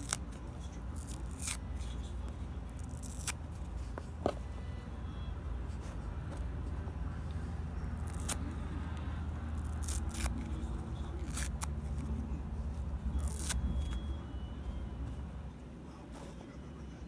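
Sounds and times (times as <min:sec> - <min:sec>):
foam sponge tearing: 0:00.9 - 0:01.6, 0:02.8 - 0:03.5, 0:08.0 - 0:08.4, 0:09.5 - 0:10.6, 0:11.2 - 0:12.0, 0:13.2 - 0:14.0.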